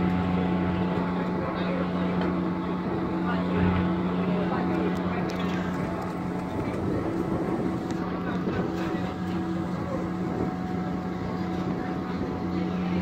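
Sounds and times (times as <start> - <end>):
deck machinery humming: 0.0 - 13.0
faint crew voices: 0.0 - 13.0
wind on microphone: 5.0 - 13.0.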